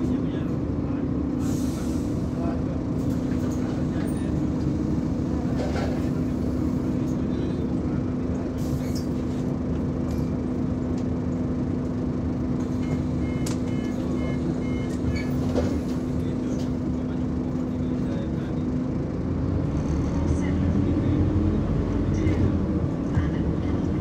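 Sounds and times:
bus engine hum: 0.0 - 24.0
short electronic beeps: 12.8 - 15.2.

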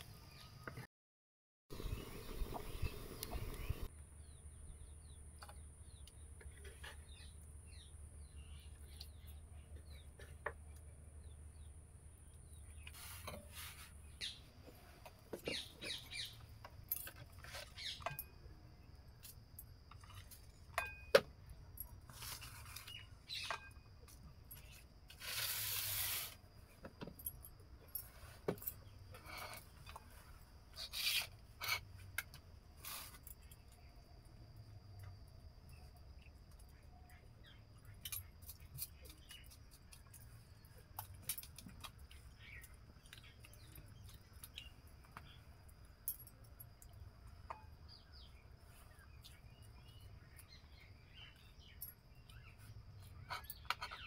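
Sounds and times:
faint bird chirps: 1.7 - 18.4.

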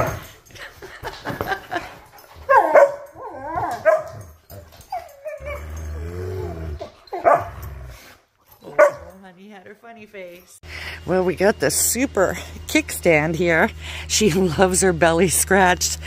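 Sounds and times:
dogs whining and yipping: 2.2 - 9.2
dog growling: 5.0 - 9.1.

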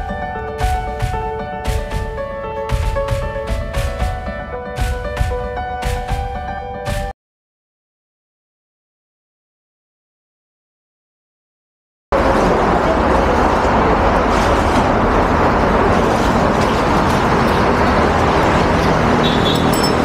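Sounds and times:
road traffic noise: 12.1 - 20.0.

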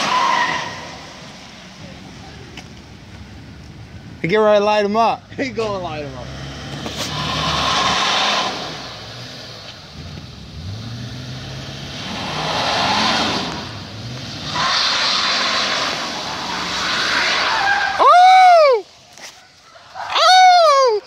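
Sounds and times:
tyres hissing on wet road: 0.0 - 2.4, 6.2 - 18.1
truck engine revving: 5.4 - 18.0.

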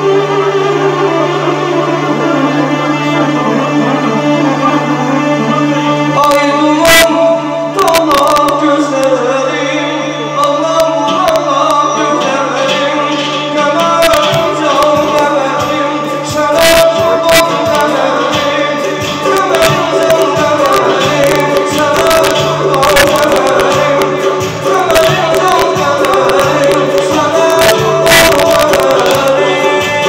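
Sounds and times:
electronic keyboard: 0.0 - 30.0
man singing into microphone: 0.0 - 30.0
sharp percussion hits: 10.9 - 30.0.

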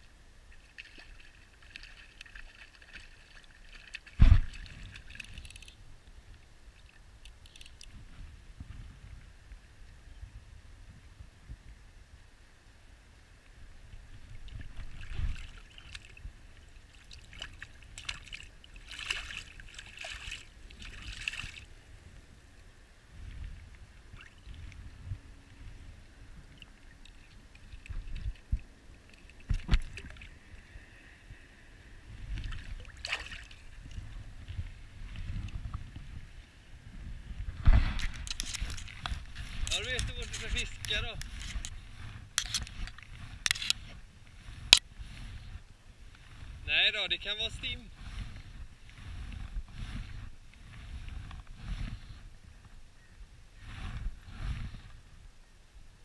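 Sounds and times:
water sloshing and splashing: 0.5 - 5.8, 14.2 - 21.7, 26.4 - 30.6, 32.3 - 35.5
wind rumble on microphone: 4.1 - 56.0.

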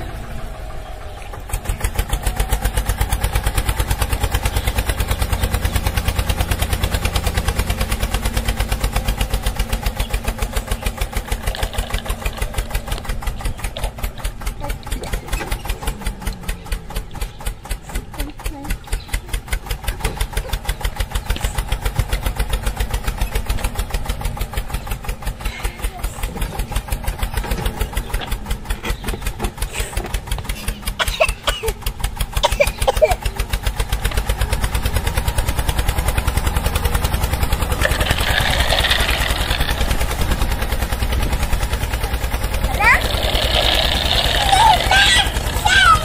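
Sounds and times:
engine idling: 0.0 - 46.0
short voices: 42.6 - 46.0.

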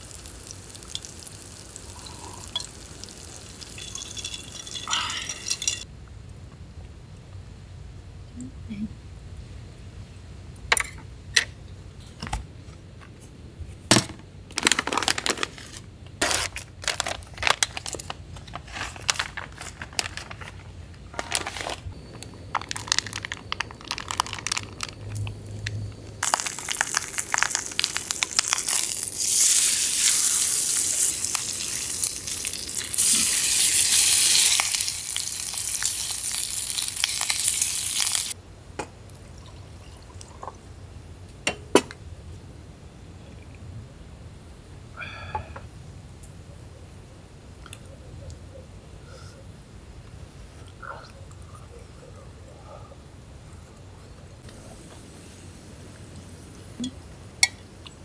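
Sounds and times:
meat sizzling in skillet: 0.0 - 5.8, 26.2 - 38.4
plastic bag crinkling: 14.5 - 25.6, 26.2 - 33.4.

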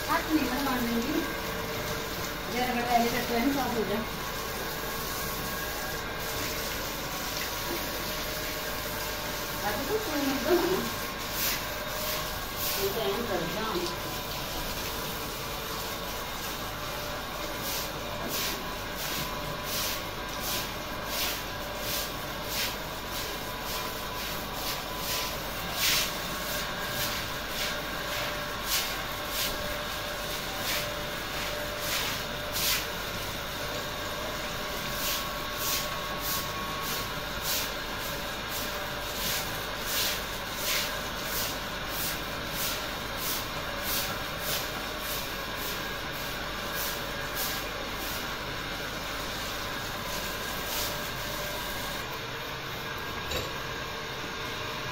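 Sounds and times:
hose water splashing: 0.0 - 52.1.

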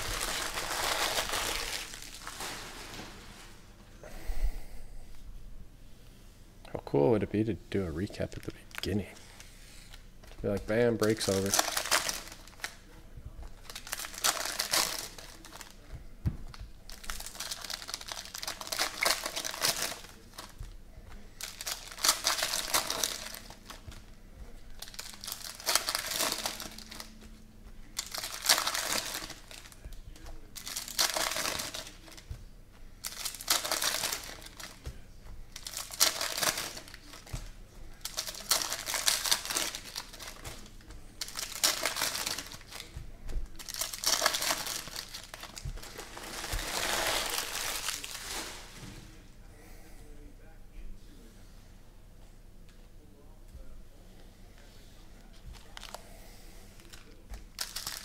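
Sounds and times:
foil wrappers crinkling and tearing: 0.0 - 3.6, 8.0 - 15.9, 16.8 - 32.4, 33.0 - 48.8, 55.5 - 56.1, 56.8 - 58.0
cards being handled: 7.9 - 48.9.

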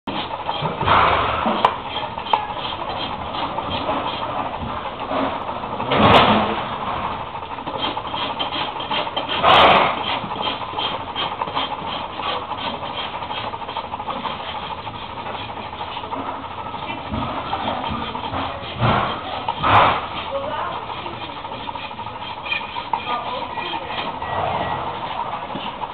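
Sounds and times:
rasp filing horse hoof: 0.1 - 25.9.

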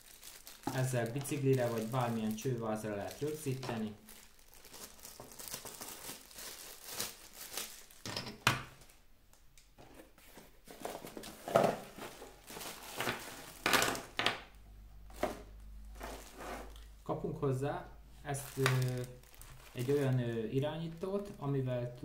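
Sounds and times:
plastic bags crinkling: 0.0 - 9.0, 10.8 - 14.3, 15.1 - 17.0, 18.3 - 22.0
cardboard box being moved: 16.0 - 16.8.

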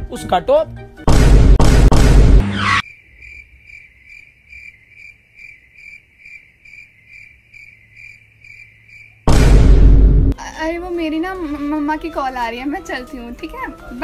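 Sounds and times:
loud whooshing hit: 1.1 - 2.8, 9.3 - 10.4
cricket chirping: 2.8 - 9.3.

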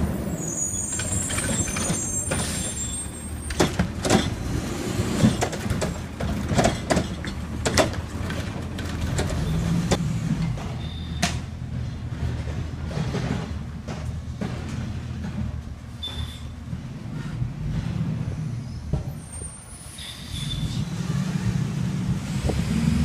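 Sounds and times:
garbage truck engine running: 0.0 - 19.1
metal clanks and bangs: 0.9 - 19.2.

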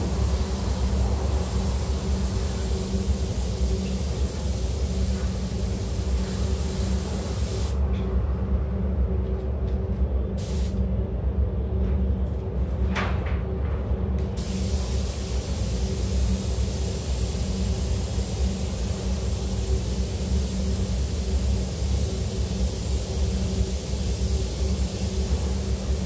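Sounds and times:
compressed air hissing from spray gun: 0.0 - 7.8, 10.4 - 10.8, 14.4 - 26.0
ventilation hum: 0.0 - 26.0.

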